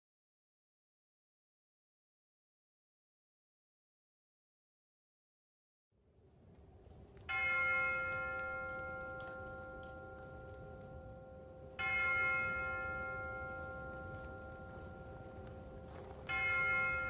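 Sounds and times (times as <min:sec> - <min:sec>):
bell ringing: 0:07.3 - 0:17.0.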